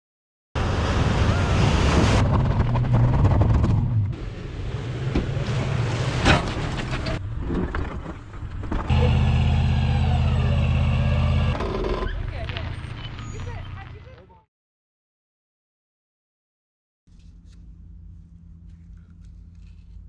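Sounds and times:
truck engine running: 0:08.9 - 0:14.1.

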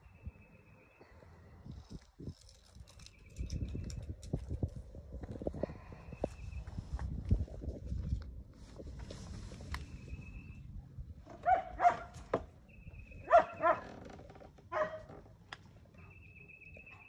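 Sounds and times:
dog barking: 0:11.4 - 0:12.1, 0:13.2 - 0:13.9, 0:14.7 - 0:15.1.

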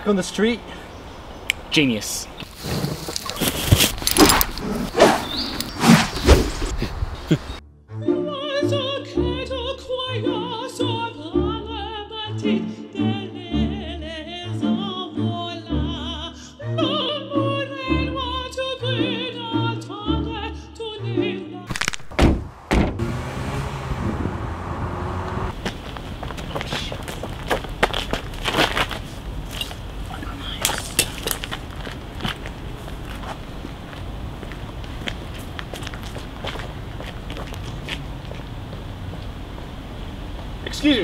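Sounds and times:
sharp thuds: 0:21.7 - 0:23.1.

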